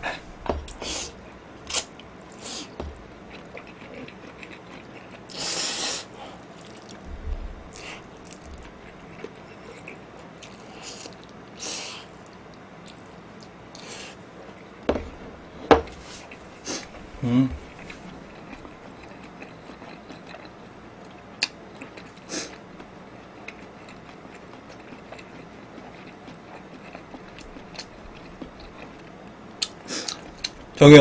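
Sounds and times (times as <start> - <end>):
chewing: 0.1 - 7.1, 7.7 - 14.7, 17.6 - 30.8
person slurping noodles: 5.3 - 6.1.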